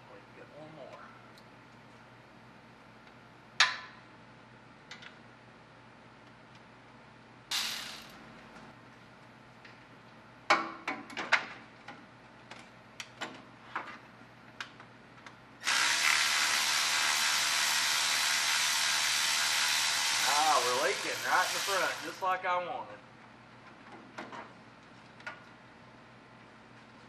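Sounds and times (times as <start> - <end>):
loud steady hiss: 7.5 - 8.1, 15.6 - 22.2.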